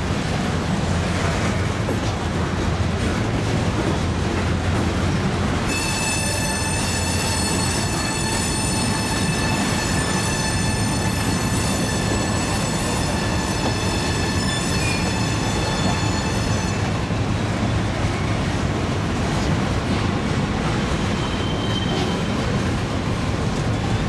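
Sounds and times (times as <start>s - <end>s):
freight train rumbling past: 0.0s - 24.0s
high wheel squeal: 5.6s - 17.1s, 21.1s - 22.5s.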